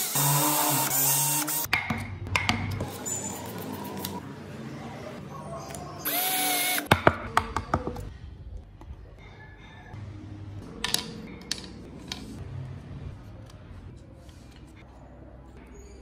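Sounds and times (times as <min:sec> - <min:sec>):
cordless drill boring into wood: 0:06.1 - 0:06.9.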